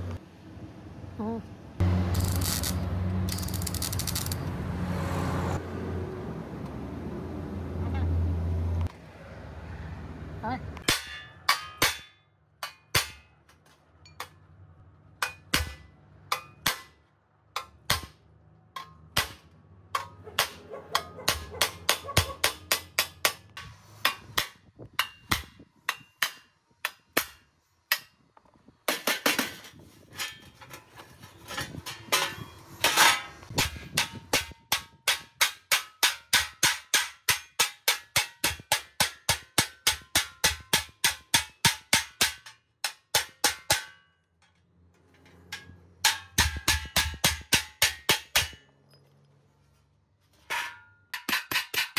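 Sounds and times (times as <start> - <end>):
hammer striking sheet metal: 10.8 - 13.4, 15.2 - 17.0, 20.0 - 28.1, 31.8 - 44.2, 45.4 - 48.7.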